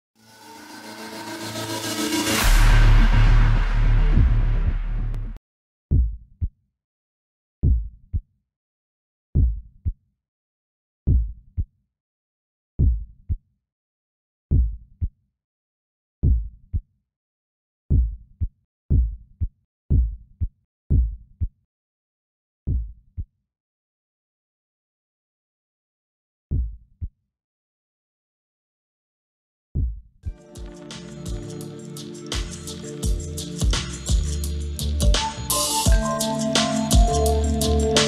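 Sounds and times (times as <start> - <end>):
deep heartbeat thumps: 2.6 - 6.2, 17.9 - 18.2, 18.9 - 19.2, 19.9 - 20.2, 20.9 - 21.2.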